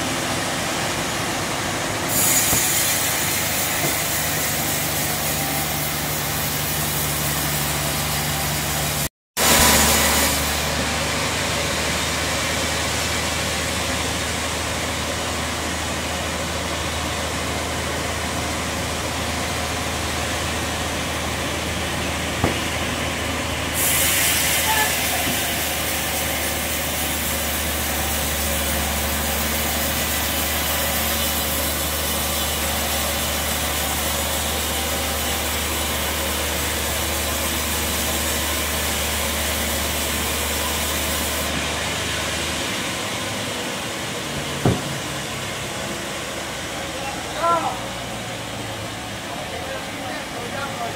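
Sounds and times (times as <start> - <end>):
loud hiss: 1.9 - 11.0, 23.6 - 41.6
sharp knock: 22.4 - 22.7, 44.6 - 45.0.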